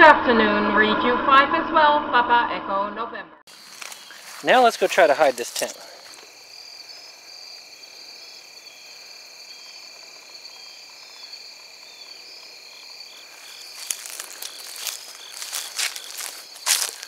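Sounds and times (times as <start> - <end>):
insect chirping notes: 3.5 - 17.0
insects trilling: 3.5 - 17.0.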